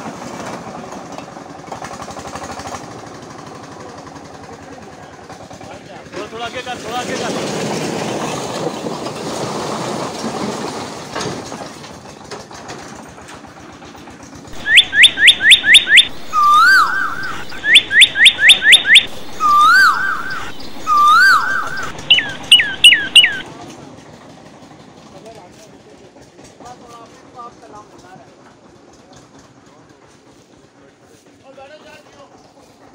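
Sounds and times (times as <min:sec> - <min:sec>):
bird-like whistled calls: 0:14.6 - 0:23.4.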